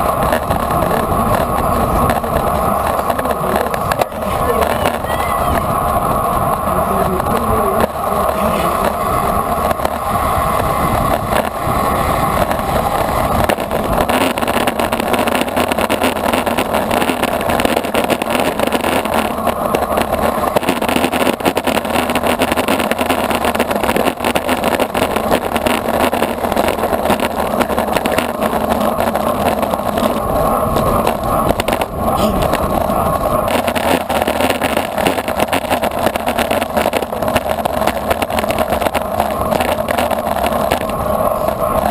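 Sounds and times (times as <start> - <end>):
bicycle tyres rolling on pavement: 0.0 - 41.9
wind rushing over microphone: 0.0 - 41.9.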